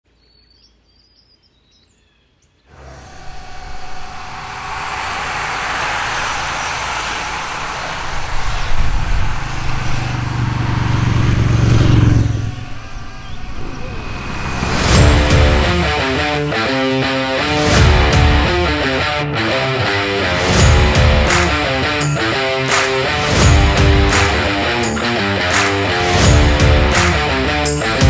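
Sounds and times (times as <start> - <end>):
bicycle drivetrain whirr: 2.7 - 14.7
low rumble: 2.7 - 16.6
bicycle tyre hiss: 2.8 - 10.9.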